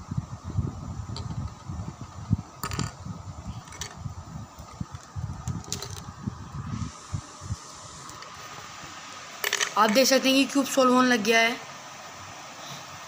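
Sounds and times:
faint steady hum: 0:00.0 - 0:13.0
handling rumble and bumps: 0:01.1 - 0:06.3.

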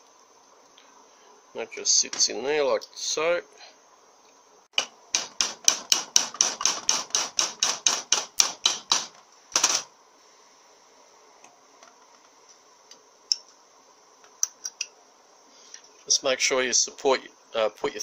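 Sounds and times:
rapid metal-on-metal tapping: 0:04.8 - 0:09.8.

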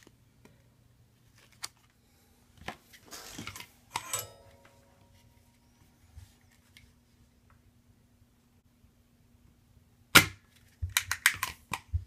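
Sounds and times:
metallic ringing click: 0:04.0 - 0:05.0.

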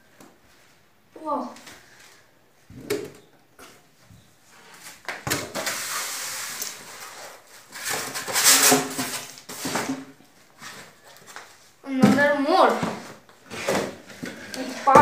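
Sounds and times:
foam and cardboard rustling: 0:04.6 - 0:15.0.

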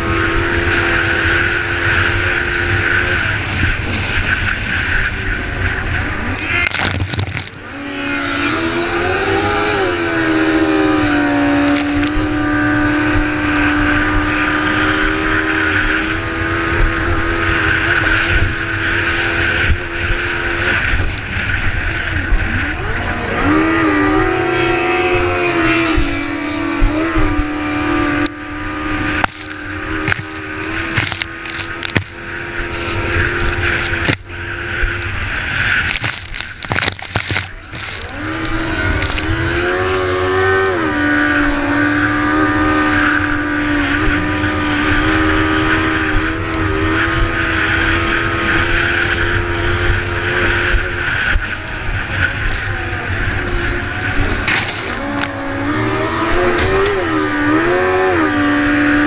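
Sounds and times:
boat engine running hard: 0:00.0 - 0:15.3, 0:15.9 - 0:59.0.

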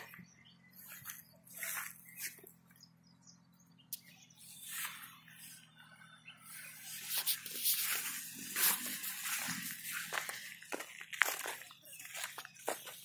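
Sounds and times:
leaves and stems rustling: 0:06.8 - 0:13.0.

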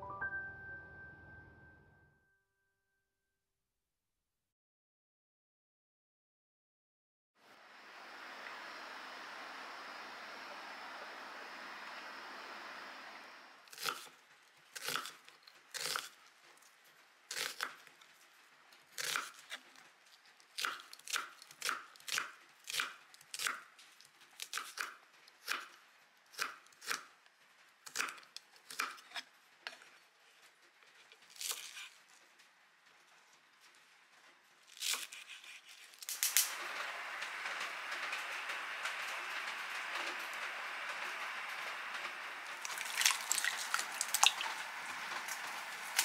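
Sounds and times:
rain hissing: 0:07.4 - 0:14.4, 0:35.8 - 0:46.0
knife slicing onion on board: 0:13.7 - 0:14.1, 0:14.8 - 0:16.1, 0:17.3 - 0:17.8, 0:18.9 - 0:19.5, 0:34.7 - 0:35.9.

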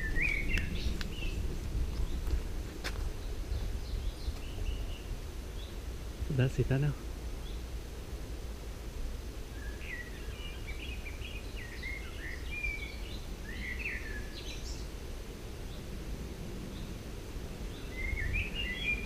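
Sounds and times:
songbird chirping and whistling: 0:00.0 - 0:01.4, 0:09.6 - 0:14.8, 0:17.7 - 0:19.0.

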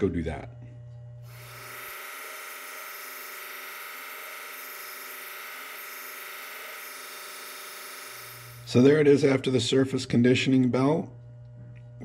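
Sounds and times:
belt grinder hum and hiss: 0:01.2 - 0:09.3.

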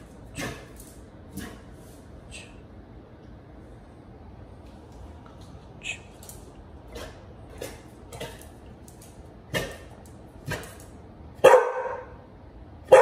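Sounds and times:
dog barking: 0:11.4 - 0:13.0.

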